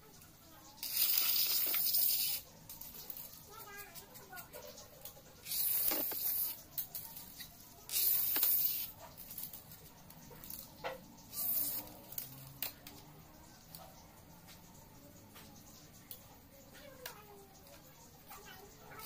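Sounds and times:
blade scraping plastic strip: 7.9 - 8.9.

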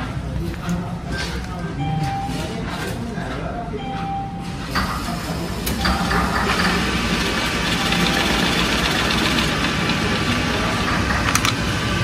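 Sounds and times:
mechanical whirring: 5.6 - 11.6.

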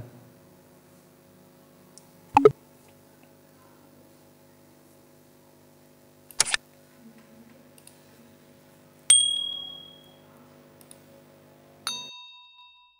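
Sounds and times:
short click: 6.3 - 6.6
bright ding: 9.1 - 10.2.

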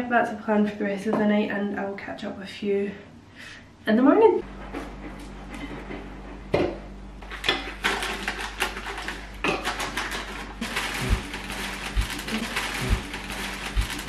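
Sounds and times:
plastic bag rustling: 7.3 - 14.0.

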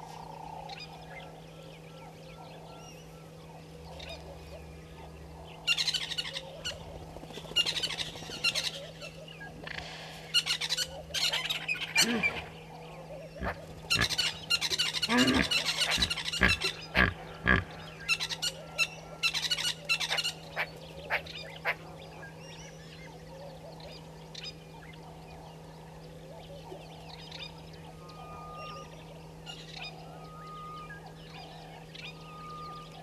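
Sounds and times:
faint bird calls: 0.0 - 33.0
goose honking: 15.0 - 17.8.

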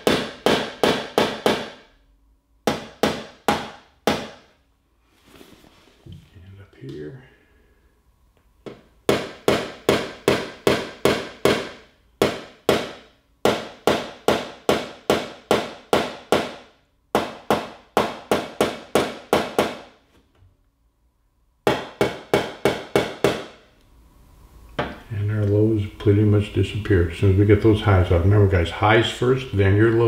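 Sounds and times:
hammer tapping on sheet metal: 0.0 - 1.9, 2.6 - 4.6, 8.7 - 20.0, 21.6 - 23.6.

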